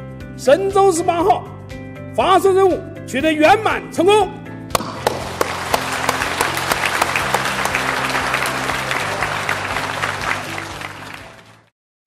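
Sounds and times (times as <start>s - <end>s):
audience applauding: 4.8s - 11.7s.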